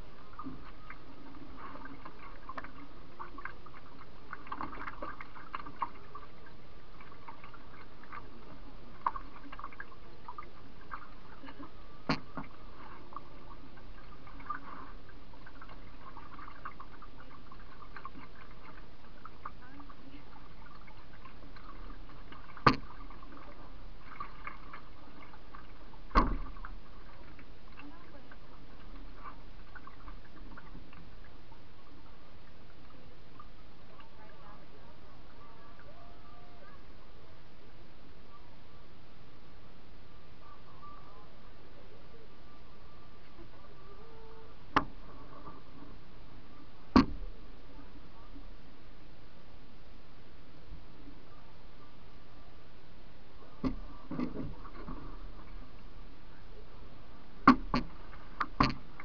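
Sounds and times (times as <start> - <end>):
water lapping at hull: 0.0 - 37.4, 40.2 - 49.1, 50.1 - 59.0
paddle knocking canoe hull: 21.6 - 23.3, 26.1 - 26.8, 46.9 - 47.3, 57.4 - 59.0
faint ticks: 44.7 - 45.6.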